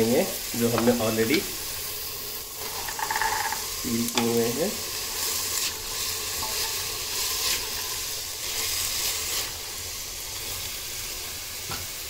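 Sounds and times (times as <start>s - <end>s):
vegetables sizzling in pot: 0.0s - 12.0s
spatula stirring: 2.2s - 9.5s.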